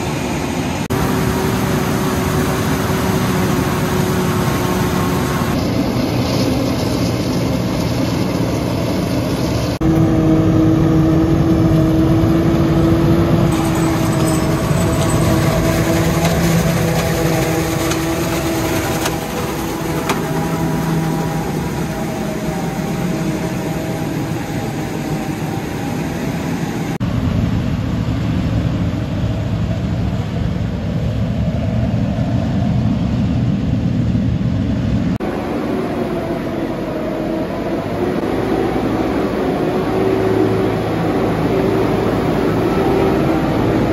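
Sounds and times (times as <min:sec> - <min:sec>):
steady machine whine: 0:00.0 - 0:33.7, 0:35.2 - 0:43.9
forage harvester running: 0:00.9 - 0:27.0, 0:35.2 - 0:43.9.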